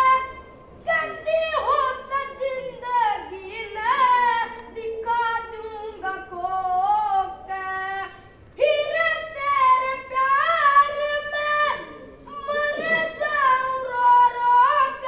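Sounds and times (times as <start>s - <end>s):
boy singing folk song: 0.0s - 15.0s.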